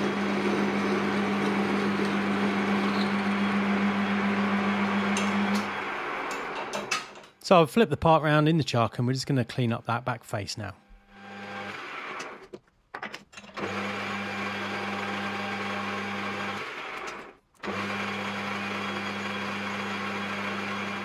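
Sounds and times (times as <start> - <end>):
metal lathe motor hum: 0.0 - 6.9, 11.1 - 12.4, 13.5 - 21.0.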